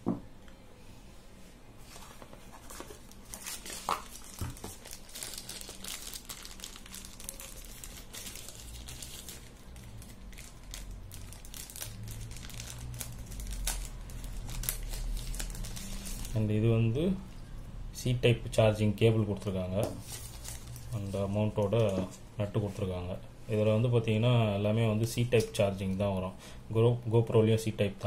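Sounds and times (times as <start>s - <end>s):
packaging crinkling and rustling: 1.9s - 16.5s, 19.8s - 22.2s.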